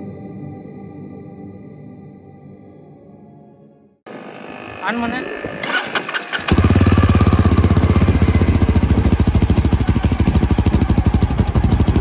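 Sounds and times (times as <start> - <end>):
motorcycle engine starting and idling: 4.1 - 12.0.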